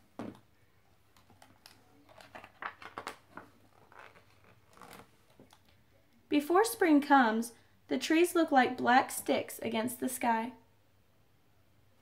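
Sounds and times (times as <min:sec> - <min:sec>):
pages rustling: 0:01.1 - 0:05.6.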